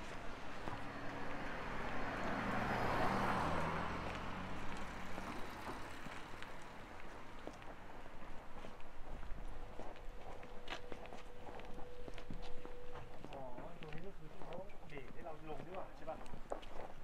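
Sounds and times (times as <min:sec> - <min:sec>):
car driving past: 0:00.1 - 0:07.7.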